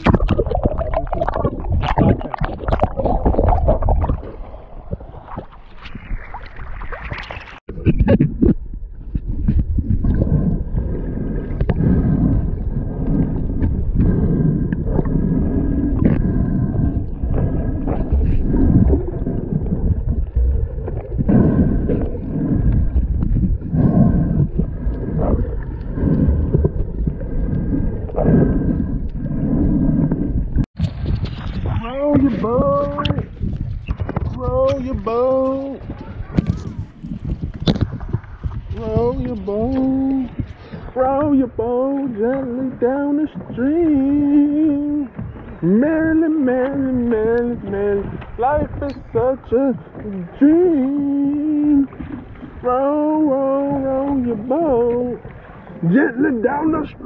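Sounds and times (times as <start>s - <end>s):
underwater rumble and gurgle: 0.0s - 57.0s
water splashing and sloshing: 0.0s - 57.0s.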